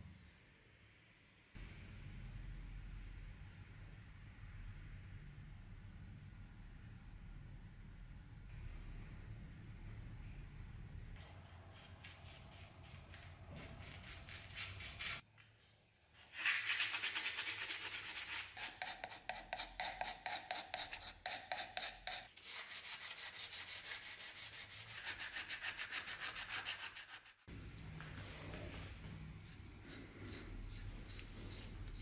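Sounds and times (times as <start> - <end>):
sandpaper block sanding wood: 11.8 - 15.2, 16.3 - 27.4.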